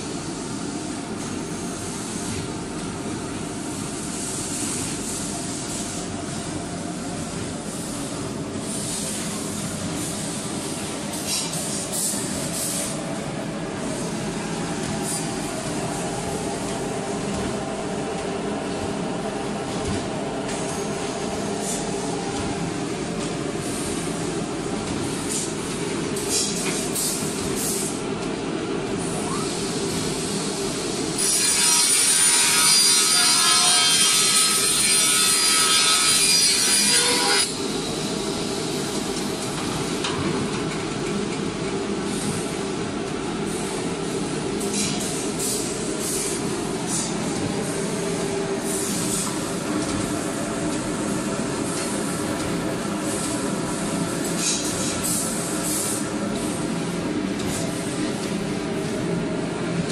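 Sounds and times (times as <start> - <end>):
circular saw cutting wood: 31.2 - 37.6.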